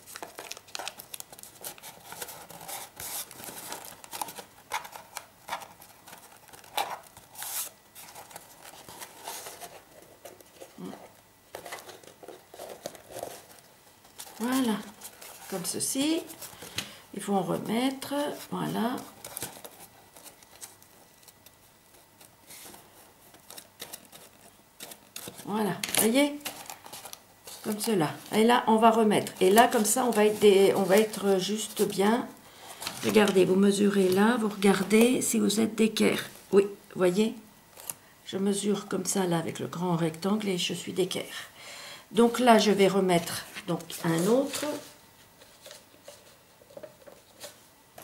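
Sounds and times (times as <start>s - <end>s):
paper rustling: 0.0s - 32.0s, 32.6s - 35.2s, 42.5s - 48.0s.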